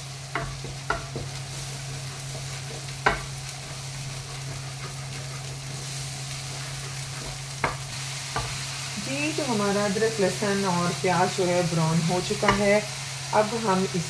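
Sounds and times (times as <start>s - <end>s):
onion sizzling in hot oil: 0.0s - 14.0s
wooden spoon stirring: 0.3s - 8.6s
spoon knocking against pot: 3.0s - 3.3s.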